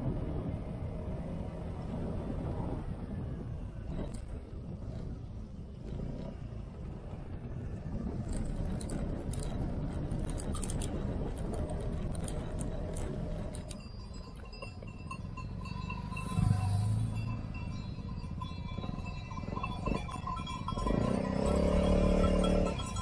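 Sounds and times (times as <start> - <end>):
wind rumble: 0.0 - 23.0
scooter engine: 3.1 - 23.0
rattles and knocks on cobblestones: 3.5 - 16.3, 17.1 - 23.0.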